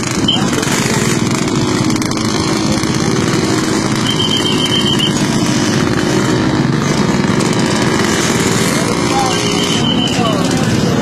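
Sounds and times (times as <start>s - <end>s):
motorcycle engines running: 0.0s - 11.0s
high beeps: 0.2s - 0.6s, 4.0s - 5.2s, 9.5s - 10.4s.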